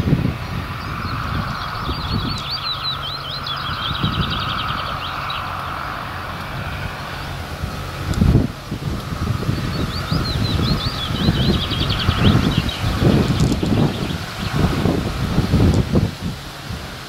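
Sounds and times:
distant diesel engine hum: 0.0 - 17.0
songbird warbling: 0.8 - 6.0, 9.0 - 14.7.

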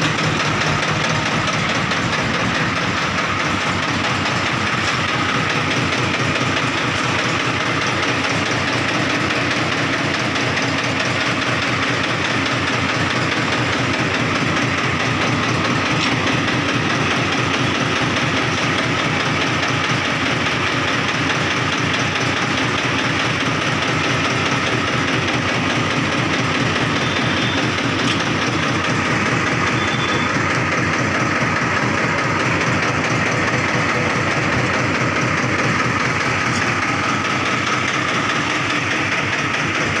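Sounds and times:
tractor diesel engine idling: 0.0 - 40.0.

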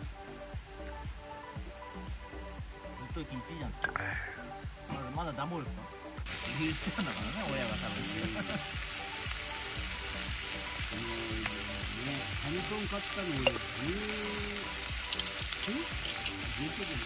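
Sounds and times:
meat sizzling in a frying pan: 6.2 - 17.0
small pops: 15.0 - 16.4.

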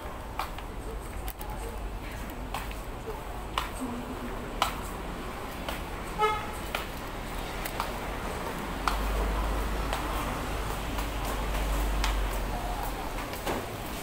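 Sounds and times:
busy street market noise: 0.0 - 14.0
vehicle horn toot: 6.2 - 6.6.

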